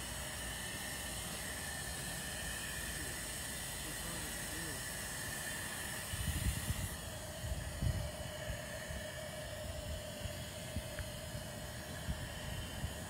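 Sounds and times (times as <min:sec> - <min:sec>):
faint steady hum: 0:00.0 - 0:13.0
steady hiss: 0:00.0 - 0:13.0
wind buffeting microphone: 0:06.1 - 0:13.0.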